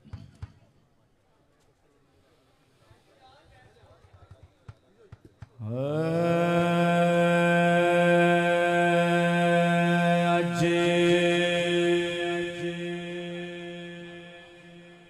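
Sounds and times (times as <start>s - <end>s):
person singing long note: 5.6s - 15.0s.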